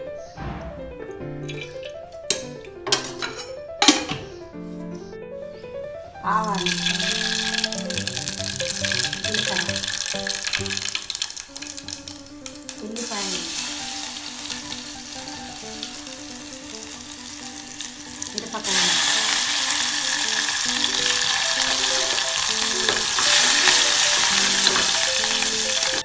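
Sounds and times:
seeds sizzling in hot oil: 6.4 - 26.0.

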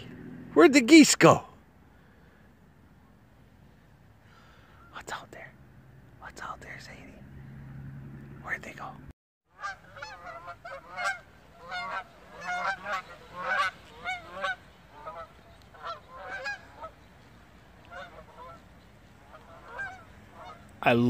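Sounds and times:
geese honking: 9.5 - 20.9.

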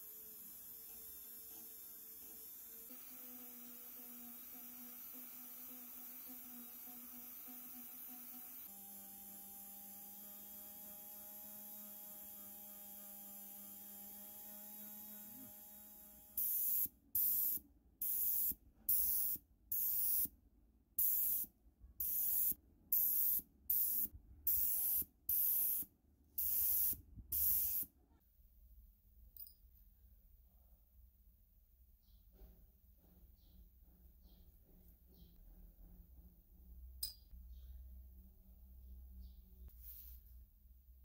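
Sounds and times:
spray paint can bursts: 21.0 - 27.9.

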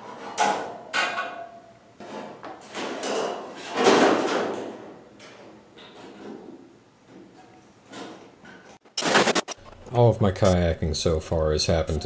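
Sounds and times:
aluminium sheets knocking and rattling: 0.0 - 6.5.

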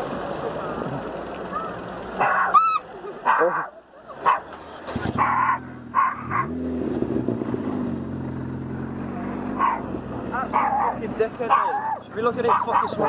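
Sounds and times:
dog barking: 2.2 - 4.5, 5.2 - 6.5, 9.6 - 13.0
engine revving: 4.2 - 13.0.

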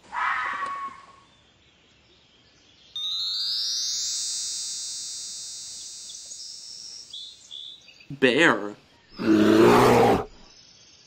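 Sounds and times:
high electronic tone: 3.0 - 7.2.

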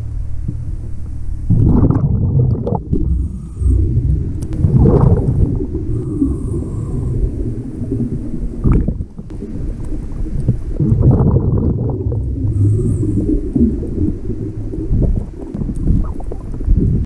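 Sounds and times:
muffled underwater rumble: 0.0 - 17.0.

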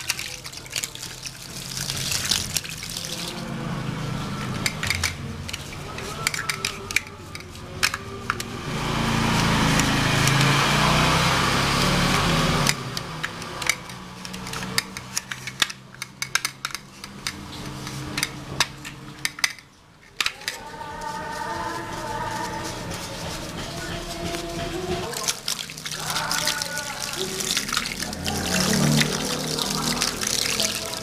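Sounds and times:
paintbrush scrubbing in water: 0.0 - 12.7, 20.4 - 31.0
plastic parts clicking and knocking: 4.4 - 8.5, 12.6 - 20.6.

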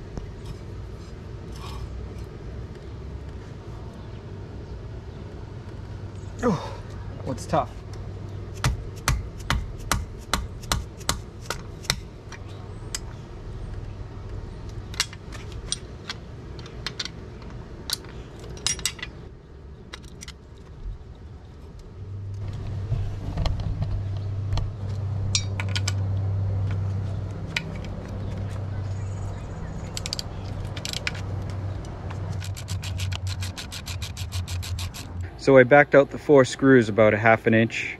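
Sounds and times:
low steady hum: 0.0 - 37.9
ratcheting wrench clicking: 32.3 - 35.2.

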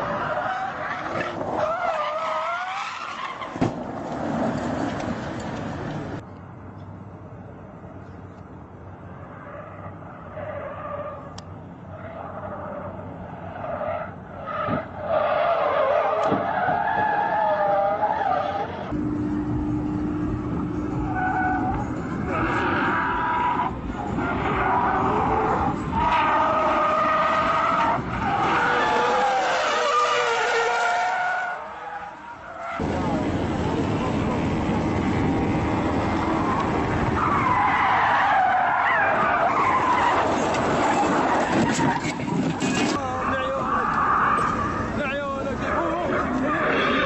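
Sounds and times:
car tyres squealing: 0.0 - 6.1, 9.1 - 18.9, 20.6 - 47.0.

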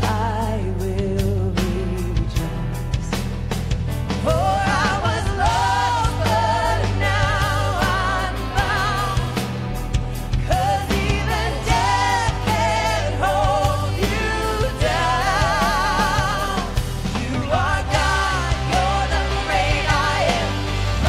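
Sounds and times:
drums: 0.0 - 21.0
electric guitar: 0.0 - 21.0
woman singing with vibrato: 4.2 - 9.5, 10.4 - 20.6.

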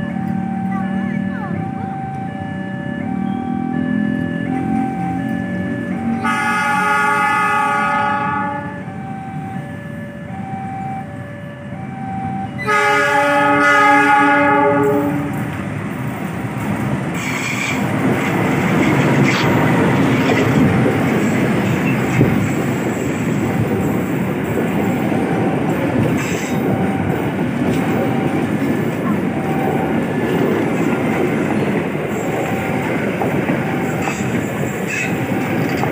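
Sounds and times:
locomotive horn blasts: 6.2 - 8.9, 12.6 - 15.4
train wheels rumbling on rails: 11.9 - 35.9.

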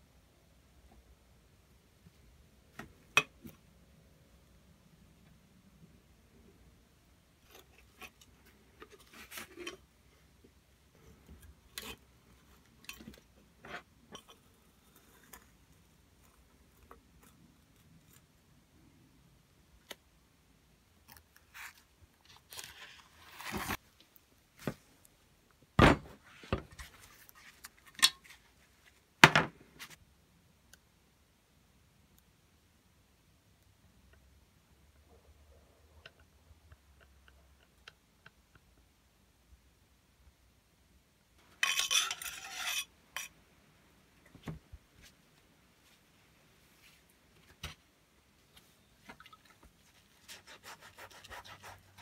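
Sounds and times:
metal parts clicking and scraping: 41.5 - 43.3.

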